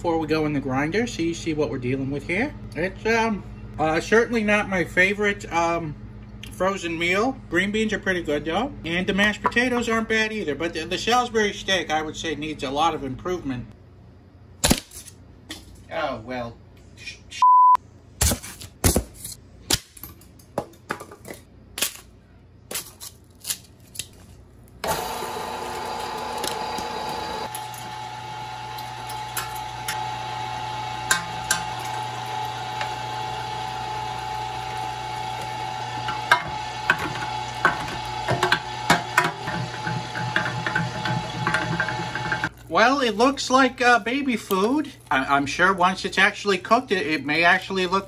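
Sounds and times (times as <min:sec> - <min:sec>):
short high beep: 0:17.4 - 0:17.8
meat grinder humming: 0:24.8 - 0:42.7.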